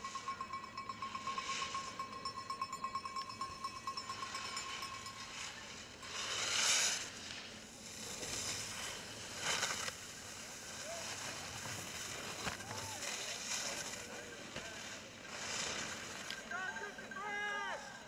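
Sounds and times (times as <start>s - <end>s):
skis scraping on snow: 4.3s - 18.0s.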